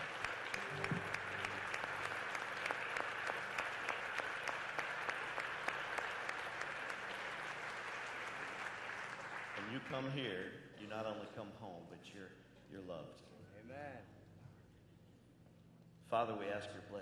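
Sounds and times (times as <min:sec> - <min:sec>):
congregation applauding: 0:00.0 - 0:10.2.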